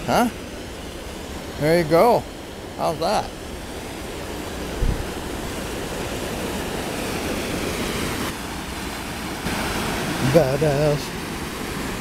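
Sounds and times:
river rushing over boulders: 0.0 - 12.0
low thump: 4.8 - 5.2.

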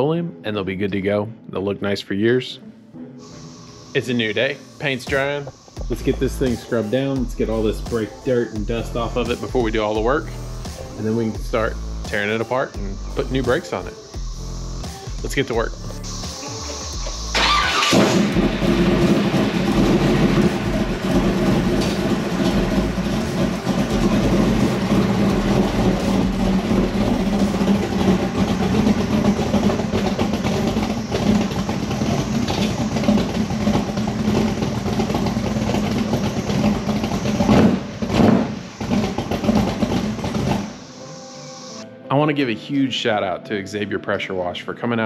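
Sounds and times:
engine running with low drone: 5.0 - 41.8.

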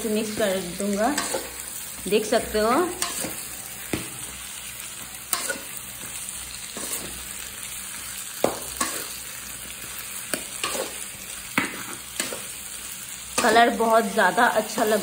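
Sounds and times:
food sizzling in a pan: 0.0 - 15.0
spatula scraping a metal pan: 0.4 - 1.6, 5.2 - 7.4, 8.4 - 9.2, 9.8 - 12.7
spatula knocking on pan: 8.4 - 9.0.

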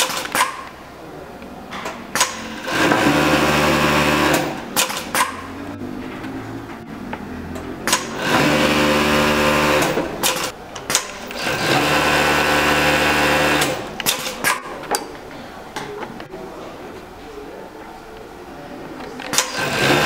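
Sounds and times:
mechanical clicks and knocks: 0.0 - 0.8, 4.3 - 8.6, 9.8 - 11.7, 13.5 - 15.1
sewing machine running: 2.3 - 5.2, 7.9 - 10.5, 11.2 - 14.4, 19.4 - 20.0.

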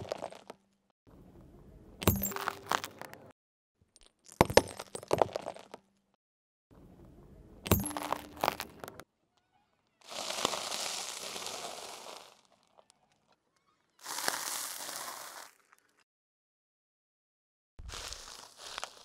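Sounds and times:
glass shards clinking: 2.0 - 3.0, 7.7 - 8.7
glass vials cracking under tyre: 2.0 - 3.2, 7.7 - 9.0
crackling crunch of toast crushed: 10.0 - 13.0, 14.0 - 16.0, 17.8 - 19.0.

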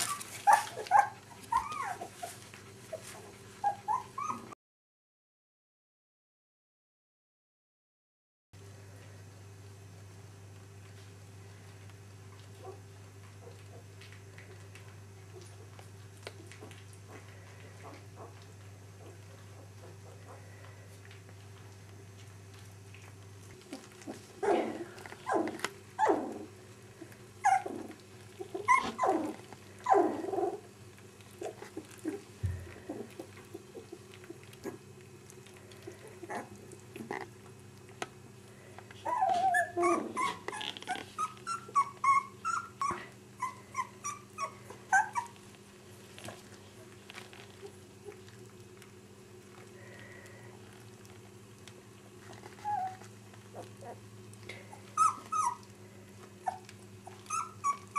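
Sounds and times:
high-pitched dog whines: 0.0 - 3.0, 3.6 - 4.6, 24.4 - 26.5, 27.4 - 30.6, 39.0 - 45.4, 52.4 - 54.0, 54.8 - 55.7, 56.4 - 57.9
dogs whimpering and yipping: 0.0 - 4.6, 23.7 - 26.5, 27.4 - 30.6, 31.4 - 34.9, 39.0 - 45.6, 52.2 - 54.0, 54.6 - 55.7, 56.3 - 57.9
faint steady hum: 8.6 - 57.9.

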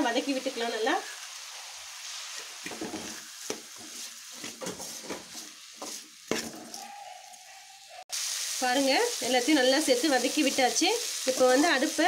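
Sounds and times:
vegetables sizzling in oil: 0.0 - 7.5, 8.1 - 12.0
spatula scraping metal pan: 2.3 - 6.8.

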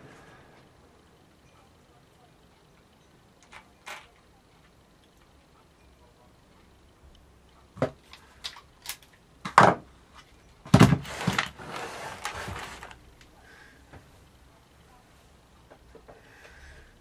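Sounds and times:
noisy handling: 7.1 - 13.4.

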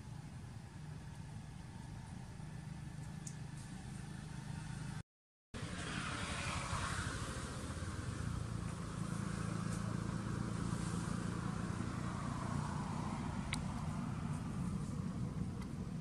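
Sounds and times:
low engine hum: 5.6 - 16.0.

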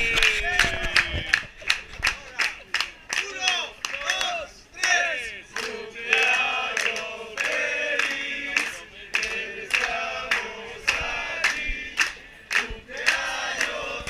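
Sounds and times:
hand claps: 0.1 - 13.8
group of people chanting: 4.8 - 14.0.

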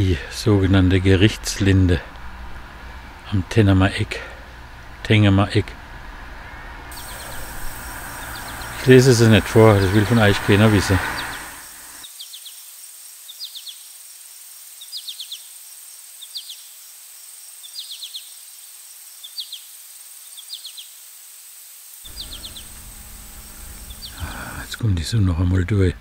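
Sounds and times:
faint steady hiss: 0.0 - 26.0
small animal chirping: 7.0 - 10.2, 22.1 - 24.6.

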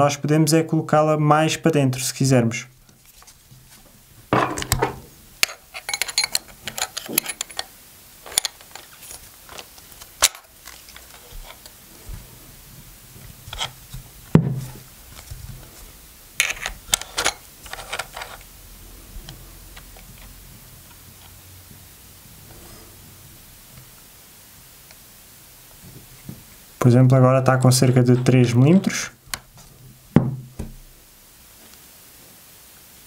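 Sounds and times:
clicks and metallic rattles: 4.4 - 7.7.

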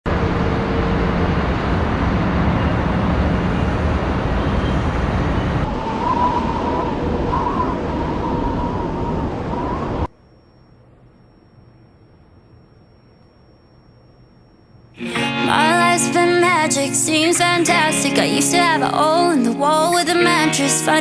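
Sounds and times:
loud steady rushing noise: 0.1 - 10.1.

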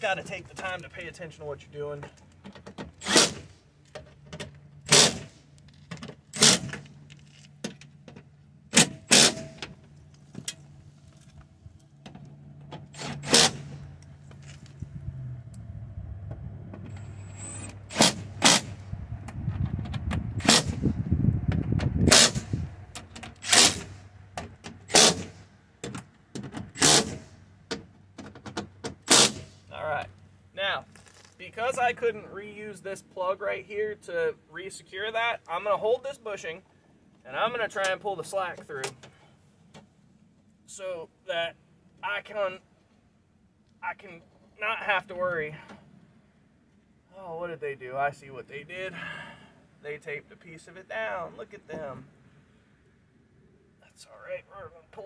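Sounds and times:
low rumble: 14.7 - 23.0.

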